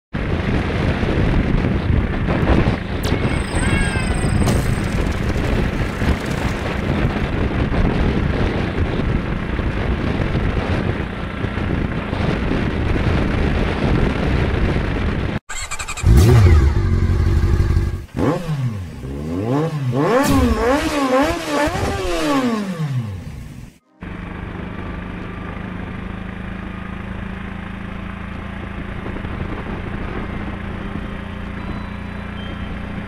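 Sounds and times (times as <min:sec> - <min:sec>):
wind noise: 0:00.2 - 0:23.1, 0:28.6 - 0:33.0
auto-rickshaw engine at speed: 0:00.2 - 0:33.0
engine revving up and down: 0:15.5 - 0:23.8.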